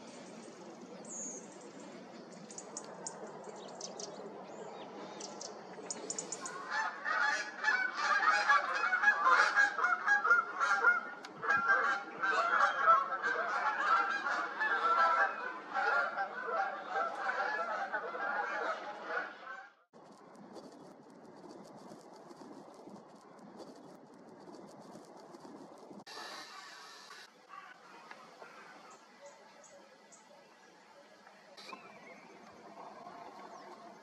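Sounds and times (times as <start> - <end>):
geese honking: 6.4 - 19.8
faint high chirps: 28.9 - 32.6.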